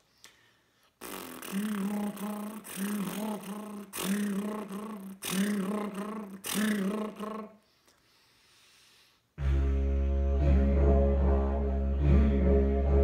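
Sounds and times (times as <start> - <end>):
buzzing lips with voice drone: 1.0 - 7.6.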